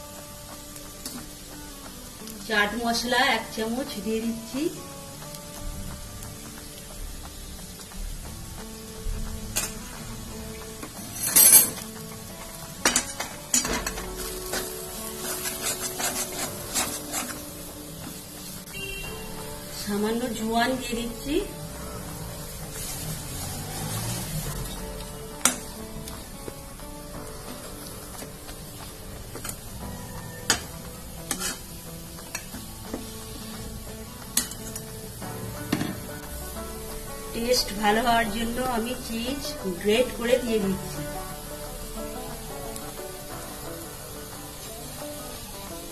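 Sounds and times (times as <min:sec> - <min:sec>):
food sizzling in oil: 0:00.0 - 0:45.9
metal spatula scraping a pan: 0:12.8 - 0:18.2, 0:30.5 - 0:33.1.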